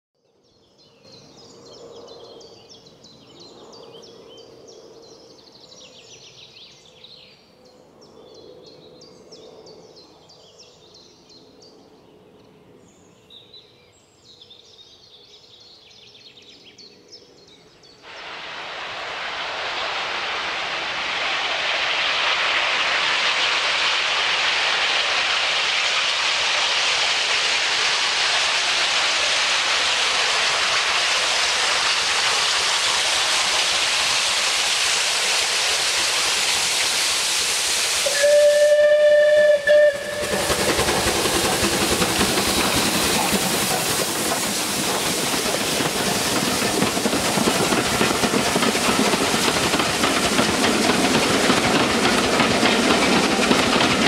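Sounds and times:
wind rushing in trees: 0:17.4 - 0:54.0.

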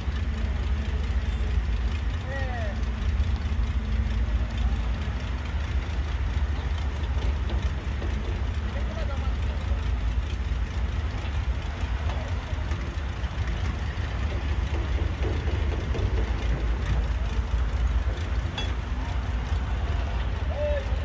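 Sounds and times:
dump truck engines rumbling: 0:00.0 - 0:21.0.

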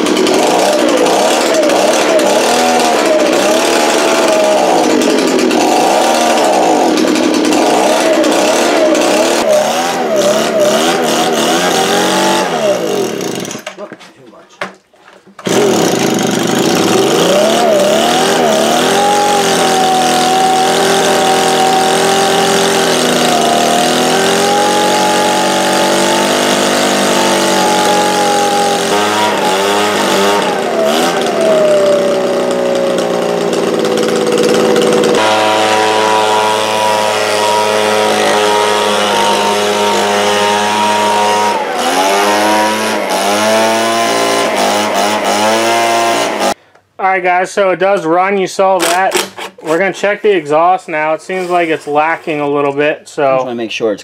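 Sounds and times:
leaf blower engine revving: 0:00.0 - 0:13.7, 0:15.4 - 0:46.6, 0:48.8 - 0:49.4.

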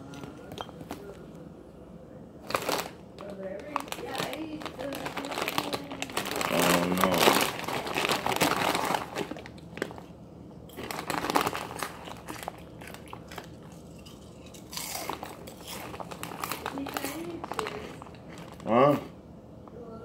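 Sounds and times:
chip bag crinkling: 0:02.4 - 0:10.1, 0:10.7 - 0:19.1
chips crunching: 0:02.4 - 0:10.1, 0:10.7 - 0:19.1.

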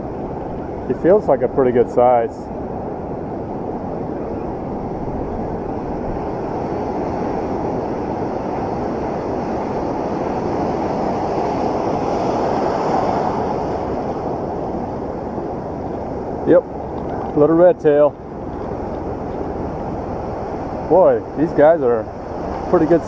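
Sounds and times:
ocean surf rushing: 0:00.0 - 0:23.0
wind on microphone: 0:00.0 - 0:23.0.

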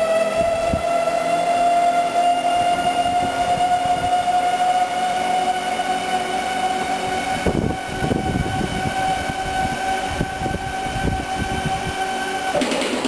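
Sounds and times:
rough low mechanical rumble: 0:00.0 - 0:12.9
electric lift motor whine: 0:00.0 - 0:13.0.

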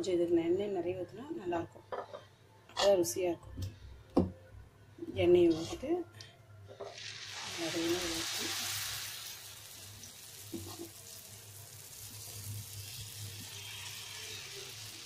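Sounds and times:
batter sizzling in hot oil: 0:06.8 - 0:15.0.

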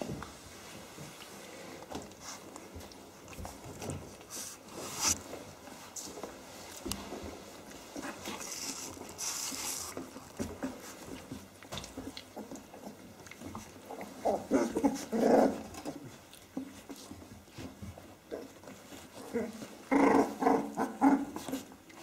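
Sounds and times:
puppies growling and whimpering: 0:09.9 - 0:22.0.

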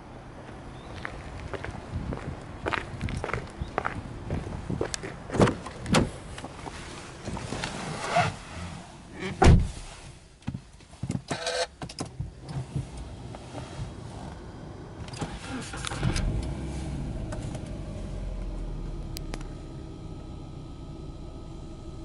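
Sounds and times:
person climbing into car seat: 0:05.3 - 0:08.5
car door opening: 0:09.2 - 0:09.9, 0:15.0 - 0:19.6
car door shutting with thump: 0:09.2 - 0:09.9
ignition clicks: 0:10.4 - 0:22.0.

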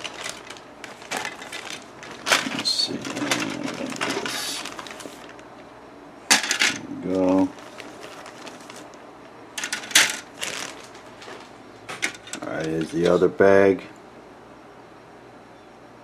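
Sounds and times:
plastic parts clattering together: 0:00.0 - 0:05.4, 0:06.3 - 0:06.9, 0:09.6 - 0:13.2
plastic bag crinkling: 0:00.0 - 0:05.7, 0:06.3 - 0:13.2.

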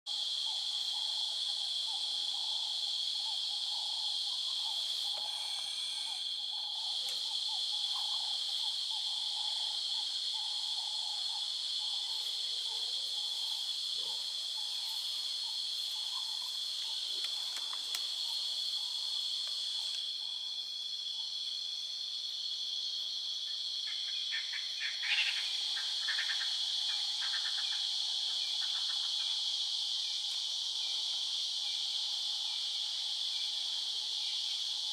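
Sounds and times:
insects trilling: 0:00.1 - 0:34.9
low pulsing insect call: 0:00.1 - 0:34.9
rapid clicking calls: 0:14.5 - 0:20.0.

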